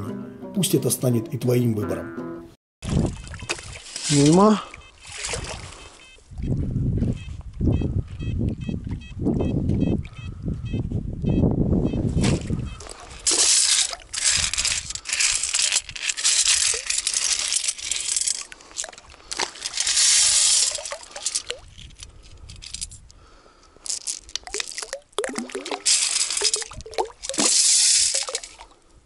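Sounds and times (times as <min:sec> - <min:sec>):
wet gravel rattling in metal scoop: 0:13.2 - 0:22.9, 0:23.8 - 0:25.0, 0:25.6 - 0:28.6
stones clicking: 0:13.3 - 0:23.0, 0:23.8 - 0:25.0, 0:25.6 - 0:28.6
water running out: 0:16.5 - 0:21.6, 0:24.2 - 0:28.7.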